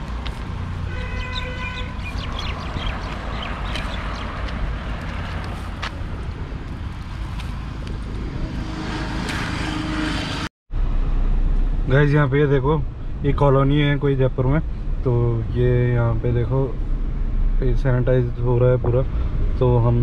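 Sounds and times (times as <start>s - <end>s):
pitched honk: 0.9s - 2.0s
low steady rumble: 10.7s - 20.0s.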